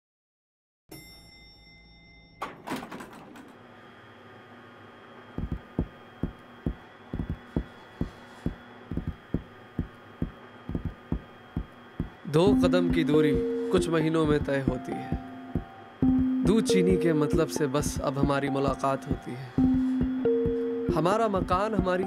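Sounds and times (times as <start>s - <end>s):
electrical hum: 3.5s - 22.0s
low uneven thumps: 5.4s - 12.2s, 14.2s - 16.7s.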